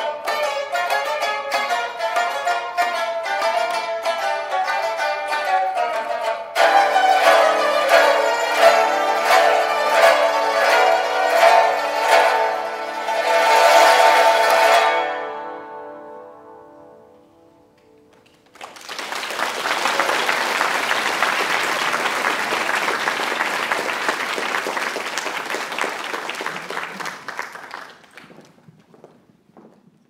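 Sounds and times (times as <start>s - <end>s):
audience applause: 18.5s - 28.6s.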